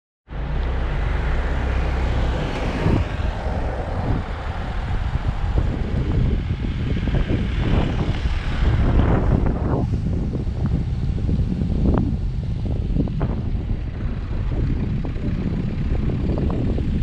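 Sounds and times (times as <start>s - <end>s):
car engine and road noise: 0.3s - 17.0s
low rumble: 0.3s - 17.0s.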